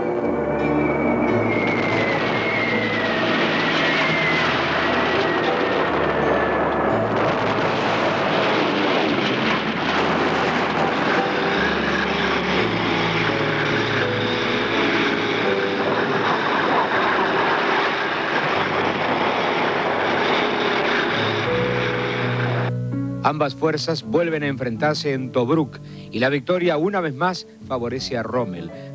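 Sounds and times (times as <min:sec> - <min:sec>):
military vehicle engines: 0:00.0 - 0:22.9.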